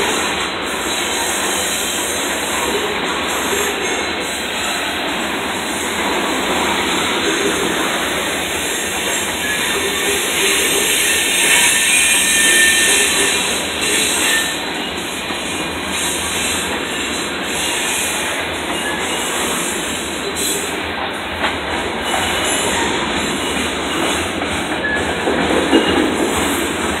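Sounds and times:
train wheels rolling on rails: 0:00.0 - 0:27.0.

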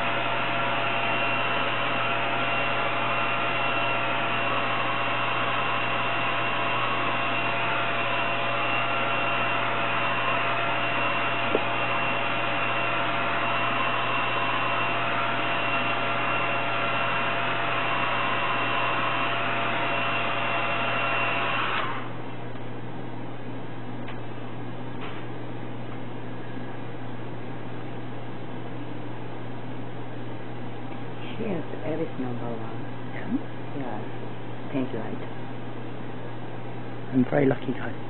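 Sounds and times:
hair dryer whining motor: 0:00.0 - 0:22.4.

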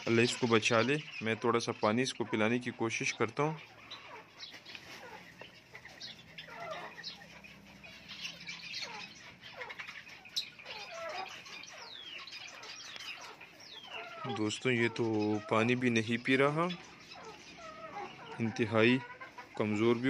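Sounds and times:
chickens squawking: 0:00.0 - 0:20.0.

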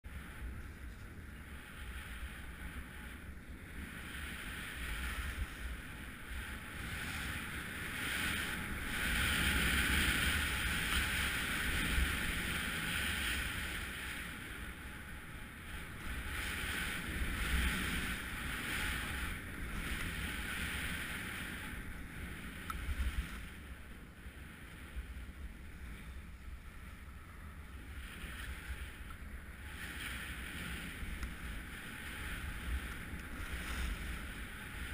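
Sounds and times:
wind rumbling on microphone: 0:00.0 - 0:34.9
skis hissing on packed snow: 0:01.3 - 0:15.1, 0:29.6 - 0:34.9.

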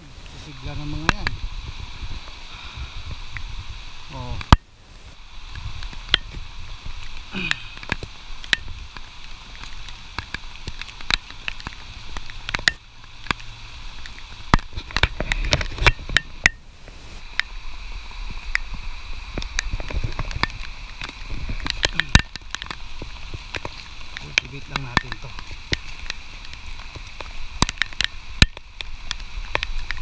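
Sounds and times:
steady rain: 0:00.0 - 0:30.0
sharp taps and knocks: 0:18.5 - 0:30.0.

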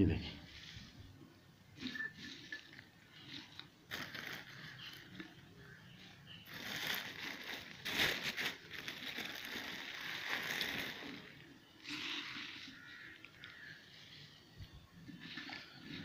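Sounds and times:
rose petals rustling: 0:01.8 - 0:14.1.

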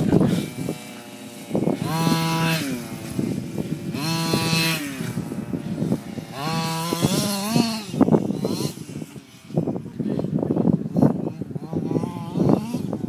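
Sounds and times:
rc truck engine revving: 0:00.0 - 0:09.8, 0:10.9 - 0:13.0.

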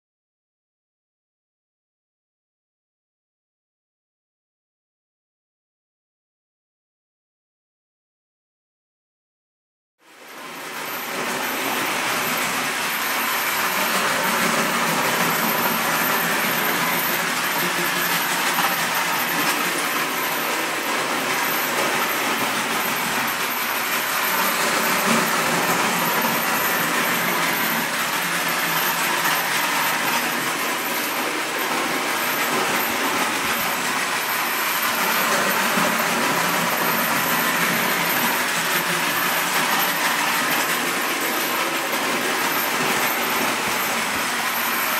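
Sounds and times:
toy train motor whirring: 0:10.6 - 0:44.8
wheels rattling on track: 0:10.6 - 0:44.9.

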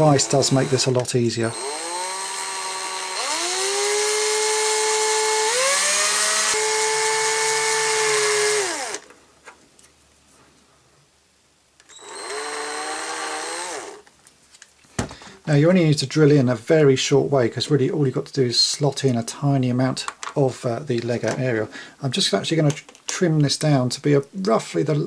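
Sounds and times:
electric drill motor whining: 0:00.0 - 0:09.1, 0:11.8 - 0:14.0.

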